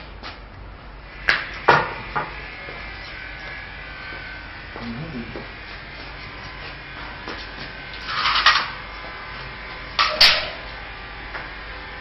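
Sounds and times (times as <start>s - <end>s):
steady low hum: 0.0s - 12.0s
steel frame scraping rattles: 8.0s - 8.8s.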